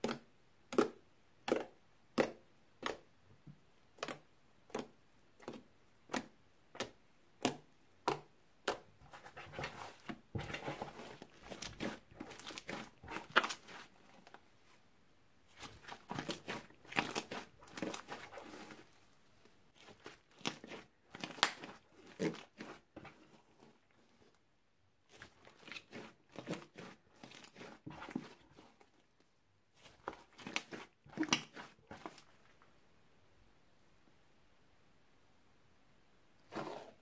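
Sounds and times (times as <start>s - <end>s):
slime clicking and popping: 21.2s - 21.7s.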